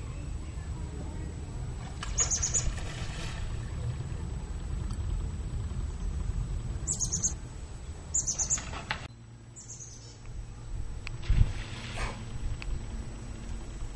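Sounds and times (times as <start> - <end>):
steady low rumble: 0.0 - 13.9
small birds chirping: 2.1 - 2.8, 6.8 - 10.3.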